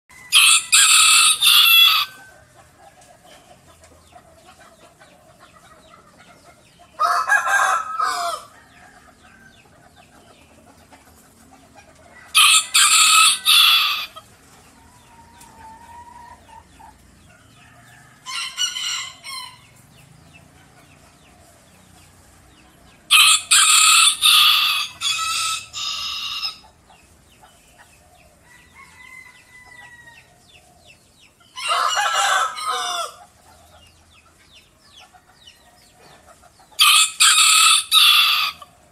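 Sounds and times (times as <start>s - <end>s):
rooster crowing loudly: 0.1s - 2.2s, 7.0s - 8.8s, 12.3s - 14.2s, 18.2s - 19.6s, 23.1s - 26.6s, 31.6s - 33.2s, 36.8s - 38.6s.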